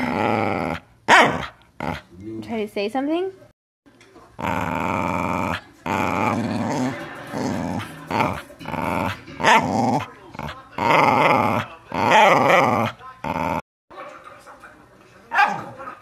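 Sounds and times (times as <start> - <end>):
dog growling: 0.0 - 2.1, 4.4 - 13.6.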